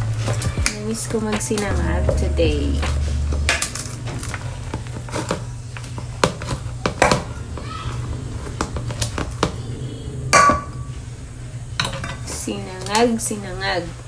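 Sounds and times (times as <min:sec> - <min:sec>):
steady low hum: 0:01.6 - 0:04.7.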